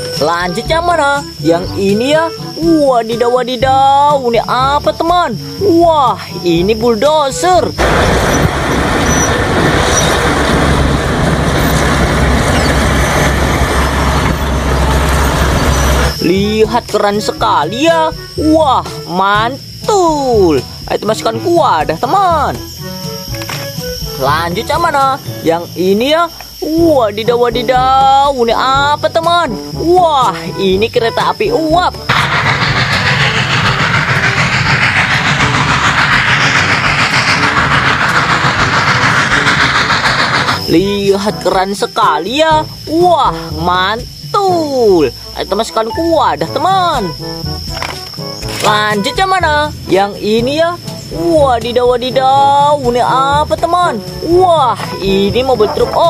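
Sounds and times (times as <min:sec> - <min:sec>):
steam hissing: 0:07.3 - 0:16.2, 0:32.0 - 0:41.5
steam locomotive exhaust chuffs: 0:07.3 - 0:17.4, 0:32.0 - 0:41.8
bulldozer diesel engine drone: 0:07.7 - 0:16.5, 0:32.0 - 0:41.1.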